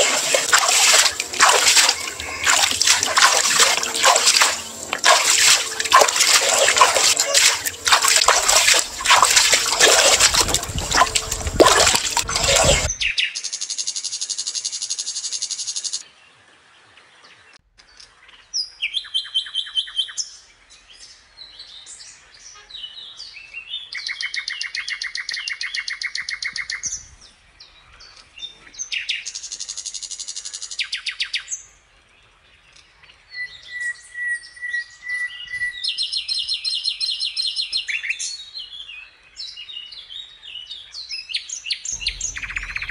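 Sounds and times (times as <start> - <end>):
water splashing: 0.0 - 13.0, 42.0 - 42.9
songbirds chirping in trills: 0.0 - 13.2, 41.9 - 42.9.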